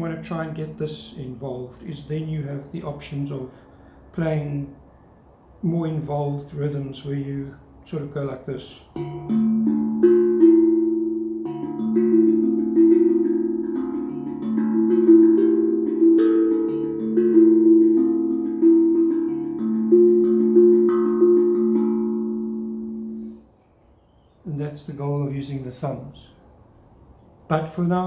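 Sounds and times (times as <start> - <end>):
steel tongue drum played by hand: 9.0 - 23.4.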